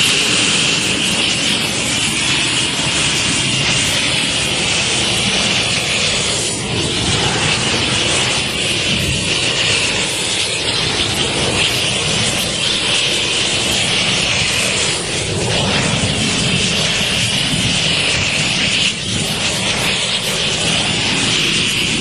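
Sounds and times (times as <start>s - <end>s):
flamethrower rushing hiss: 0.0s - 22.0s.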